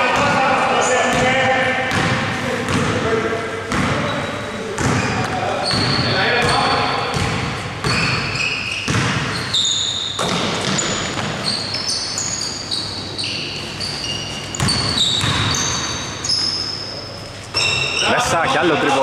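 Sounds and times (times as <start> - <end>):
basketball bouncing: 1.1 - 3.0, 3.7 - 4.1, 4.8 - 12.4, 14.4 - 16.5
sneakers squeaking on court: 3.6 - 18.4.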